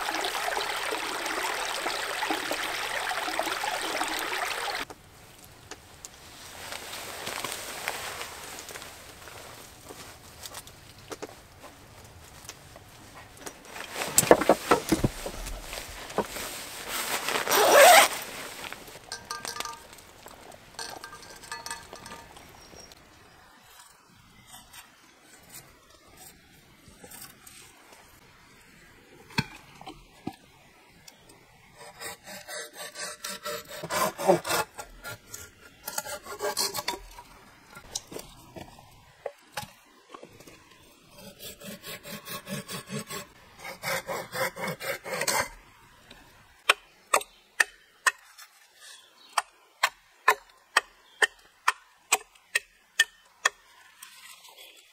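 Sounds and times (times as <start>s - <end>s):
hand saw cutting wood: 17.6s - 18.1s, 31.8s - 37.2s, 41.1s - 45.6s.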